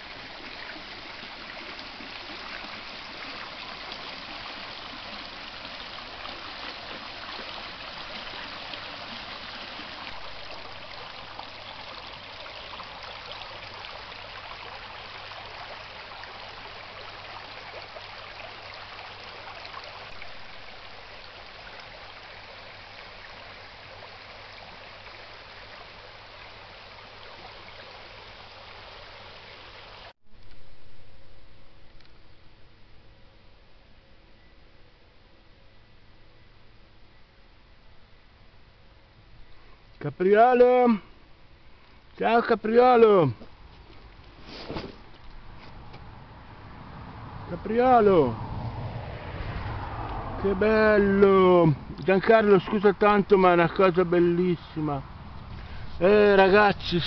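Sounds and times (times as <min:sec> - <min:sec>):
stream babbling over pebbles: 0:00.0 - 0:32.1, 0:39.8 - 0:57.0.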